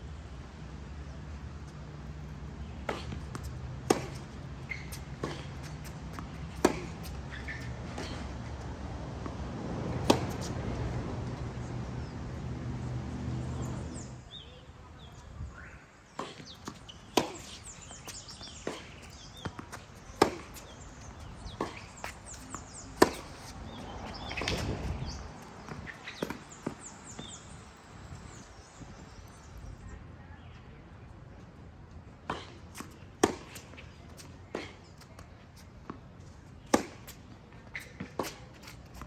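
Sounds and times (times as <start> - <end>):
tennis ball bounces: 2.8 - 11.5, 16.1 - 27.6, 32.2 - 35.2, 35.8 - 39.0
tennis racket hits: 2.9 - 8.3, 16.2 - 20.8.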